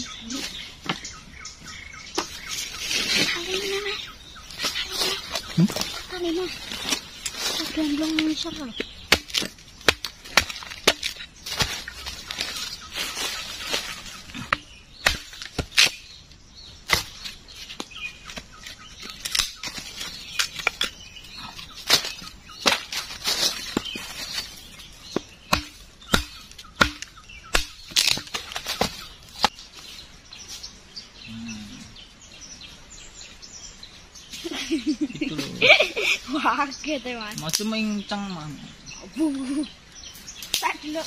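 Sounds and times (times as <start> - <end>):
hatchet chopping wood: 8.8 - 11.9, 14.4 - 16.1, 16.9 - 17.9, 25.1 - 29.6.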